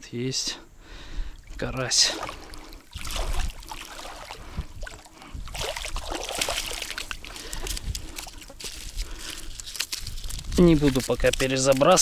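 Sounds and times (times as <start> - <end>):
water splashing and dribbling: 1.3 - 12.0
clicks and rustles: 6.4 - 12.0.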